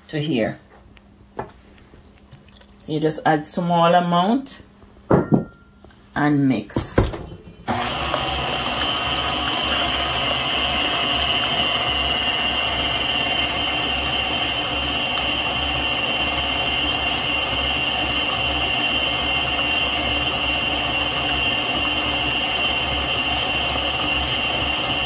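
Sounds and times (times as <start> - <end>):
stand mixer running: 7.7 - 25.0.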